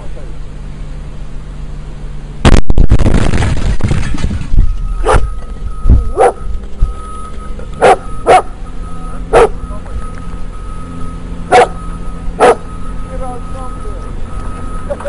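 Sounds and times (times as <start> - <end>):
loud explosion: 2.4 - 4.8
dog barking: 5.0 - 5.3, 6.1 - 6.4, 7.8 - 8.6, 9.3 - 9.6, 11.5 - 11.8, 12.4 - 12.7.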